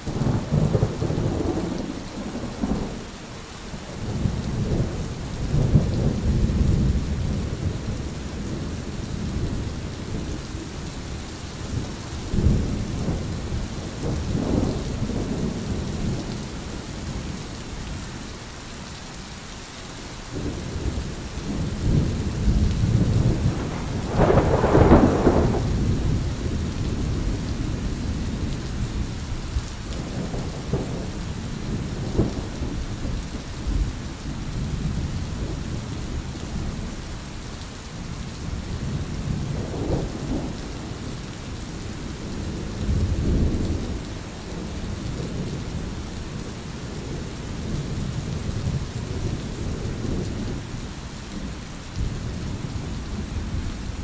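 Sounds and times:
thunder rumbling: 0:00.0 - 0:03.0, 0:03.9 - 0:17.5, 0:20.4 - 0:37.0, 0:38.3 - 0:50.7
rain hissing: 0:00.0 - 0:54.0.

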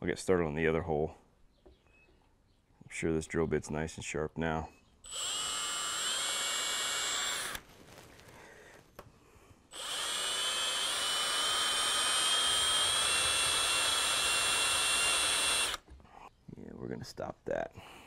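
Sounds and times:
cordless drill whining: 0:05.1 - 0:07.7, 0:09.7 - 0:15.9.

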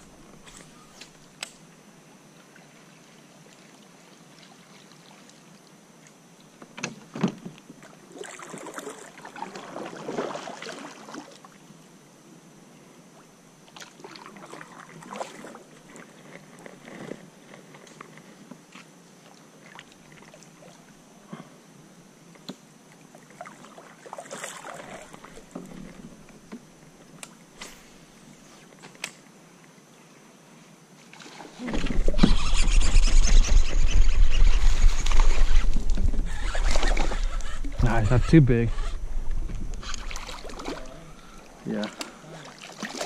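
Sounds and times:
paddle strokes splashing: 0:08.1 - 0:11.4, 0:23.3 - 0:26.1, 0:31.1 - 0:43.0.

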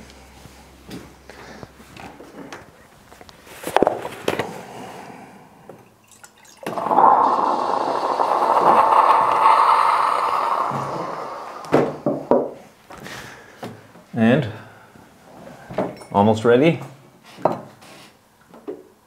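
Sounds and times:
milk pouring into metal pitcher: 0:06.1 - 0:12.0.

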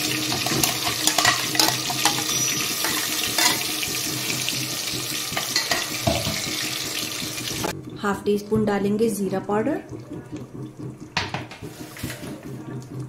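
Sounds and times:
paste sizzling in hot oil: 0:00.0 - 0:07.7.

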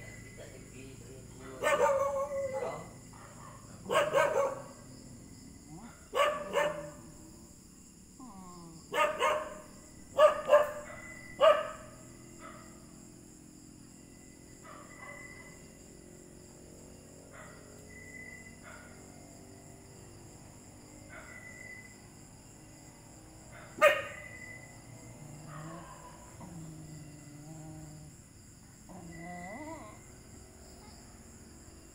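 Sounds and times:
small dog barking: 0:01.4 - 0:04.9, 0:05.7 - 0:07.2, 0:08.9 - 0:12.9, 0:14.6 - 0:15.6, 0:17.3 - 0:17.8, 0:18.6 - 0:19.0, 0:21.1 - 0:21.6, 0:23.5 - 0:24.7, 0:25.4 - 0:27.0.

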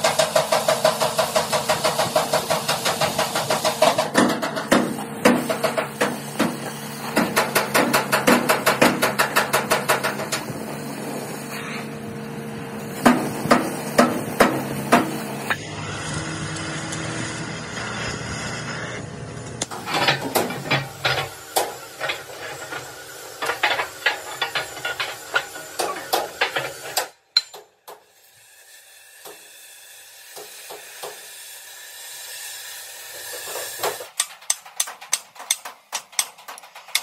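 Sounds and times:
hammer striking steel: 0:19.6 - 0:27.7.

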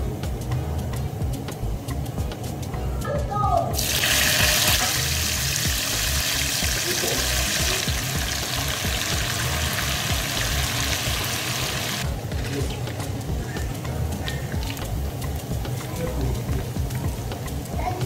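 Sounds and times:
gizzards sizzling in hot oil: 0:03.7 - 0:18.0.

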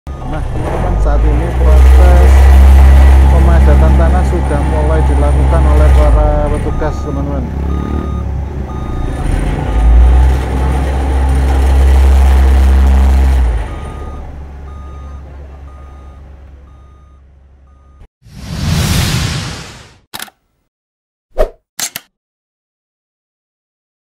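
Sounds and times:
road roller engine rumble: 0:00.1 - 0:18.0
reversing beeper: 0:05.6 - 0:09.2, 0:13.8 - 0:18.1.

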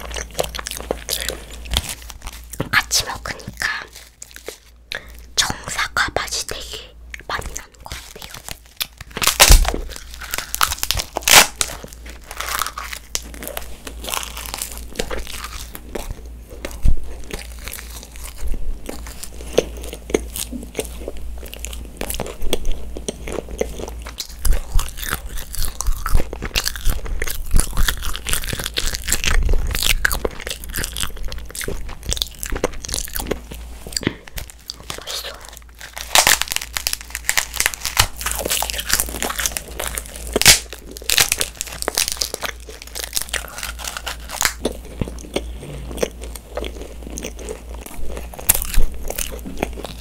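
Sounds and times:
crunchy chewing: 0:00.0 - 0:05.6, 0:07.1 - 0:50.0
crisp bite of paper: 0:24.8 - 0:45.1.

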